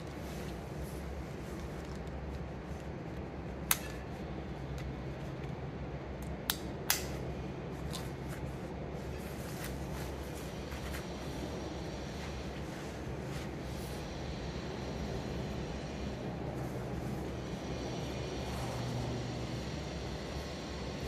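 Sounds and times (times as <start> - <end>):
steady low hum: 0.0 - 21.0
sharp plastic clicks: 3.6 - 4.0, 6.2 - 7.2.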